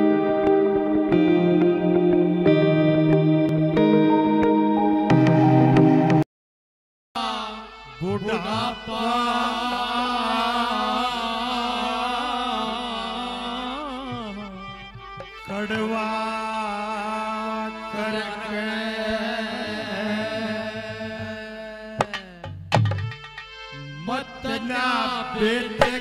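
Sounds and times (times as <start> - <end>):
instrumental drone: 0.0 - 6.2, 23.2 - 25.2
man singing melismatic notes: 7.2 - 22.5, 23.7 - 26.0.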